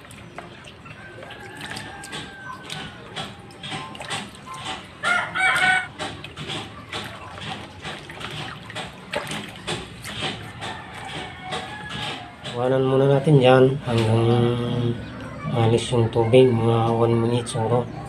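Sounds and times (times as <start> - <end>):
hands washing mushrooms in water: 0.0 - 12.8
chicken calling: 5.0 - 6.0.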